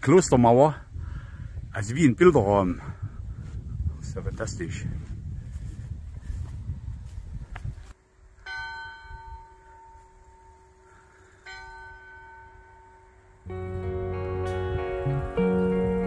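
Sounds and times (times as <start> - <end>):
wind rumble on microphone: 0.0 - 8.0
church bell tolling: 8.5 - 10.6, 11.5 - 15.7.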